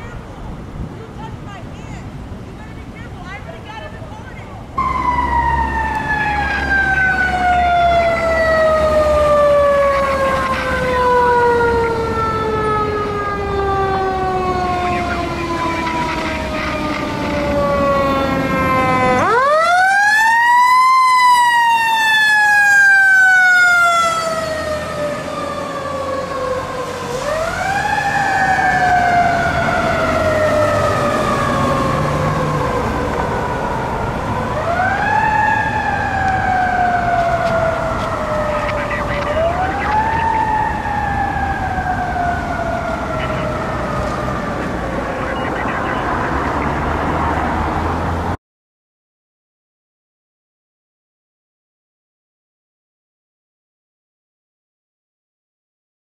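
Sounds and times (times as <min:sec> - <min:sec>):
truck rumble: 0:00.0 - 0:20.6, 0:21.5 - 0:48.4
mechanical siren wailing: 0:04.8 - 0:47.4.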